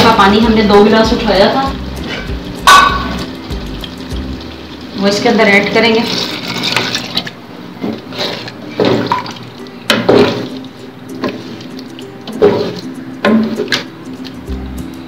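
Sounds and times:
wooden spoon knocking metal pot: 2.6 - 3.2, 12.4 - 13.9
water pouring into a pot: 2.9 - 7.4.

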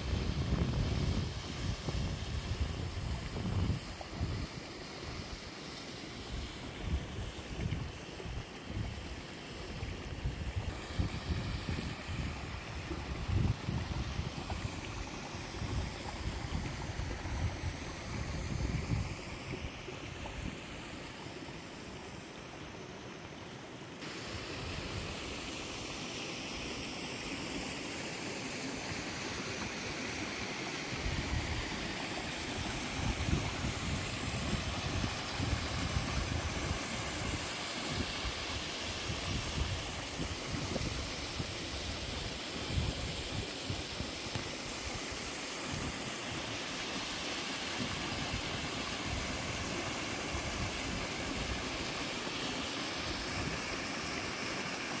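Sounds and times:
wind buffeting microphone: 0.0 - 4.6, 10.0 - 19.2
waterfall rushing: 23.9 - 42.1.

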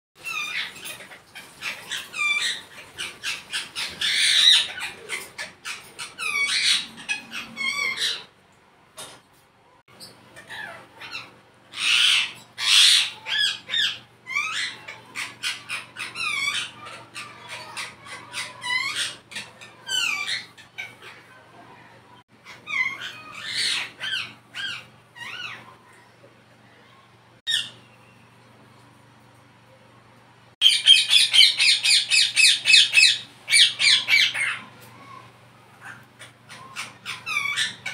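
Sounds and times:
parakeet chirps and squawks: 0.2 - 8.4, 9.9 - 28.5, 30.6 - 37.9.

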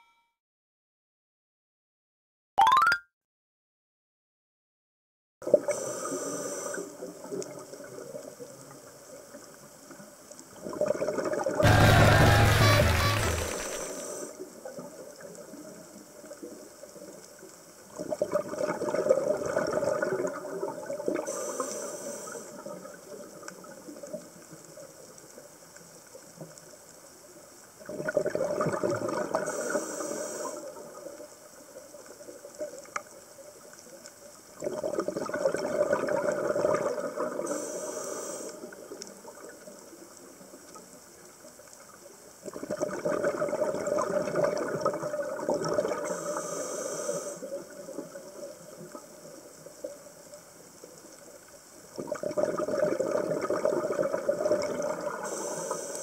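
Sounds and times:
regulator inhale hiss: 5.6 - 7.2, 13.5 - 14.5, 21.2 - 22.8, 29.4 - 30.9, 37.4 - 38.8, 46.0 - 47.8, 55.1 - 56.0
exhaled bubbles rushing: 10.6 - 14.2, 18.0 - 21.1, 34.6 - 37.4, 42.5 - 46.1, 52.0 - 55.2.

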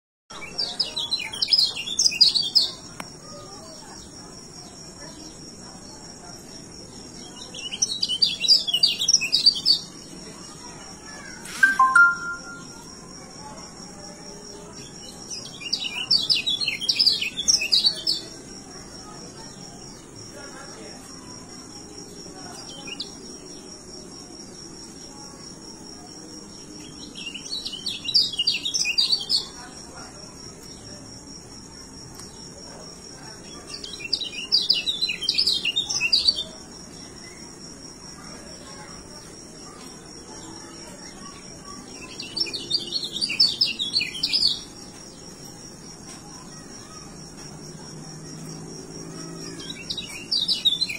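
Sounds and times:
bird twittering song: 0.3 - 12.9, 14.6 - 20.1, 26.4 - 29.8, 33.2 - 37.5, 40.4 - 47.0, 49.2 - 50.9.

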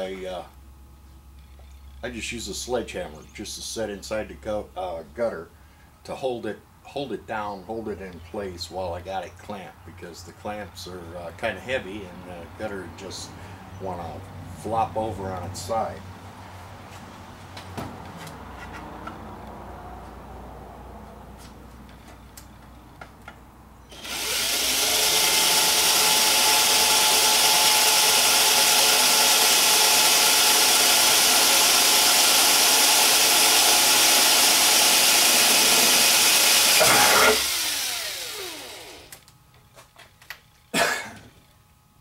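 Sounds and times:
cordless drill boring into metal: 23.9 - 39.2
drill motor winding down: 23.9 - 39.2.

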